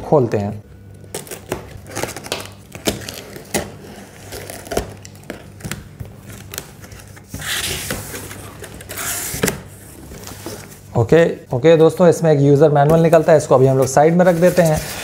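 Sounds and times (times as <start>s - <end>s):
cardboard tearing and scraping: 1.2s - 10.8s, 13.1s - 15.0s.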